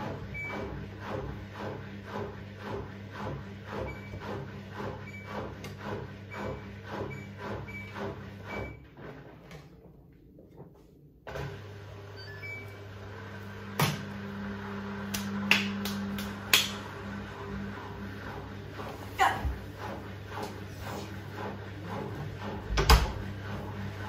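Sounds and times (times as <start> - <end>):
washing machine drum swishing water: 0.0 - 10.8, 12.4 - 24.0
steady motor hum: 11.9 - 24.0.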